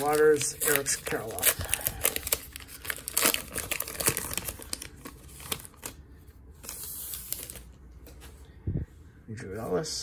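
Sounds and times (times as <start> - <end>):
card pack wrapper crinkling and tearing: 0.0 - 7.7.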